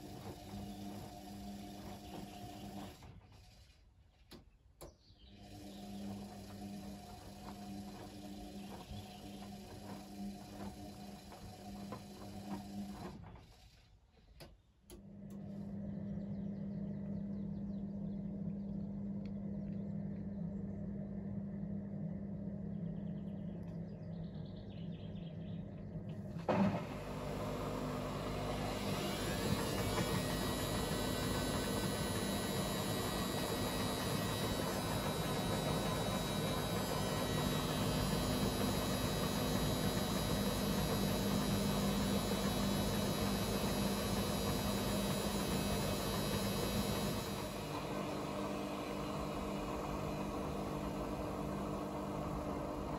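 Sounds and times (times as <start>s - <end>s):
washing machine draining hum: 0.0s - 3.1s, 5.3s - 13.2s, 26.0s - 52.9s
drum motor whining in fast spin: 0.0s - 3.7s, 5.2s - 13.8s, 25.1s - 52.9s.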